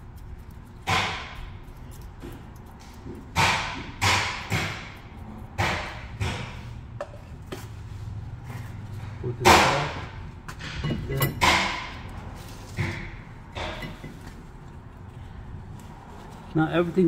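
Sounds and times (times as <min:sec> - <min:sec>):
metal brake parts knocking: 0:09.6 - 0:12.1, 0:12.8 - 0:14.4.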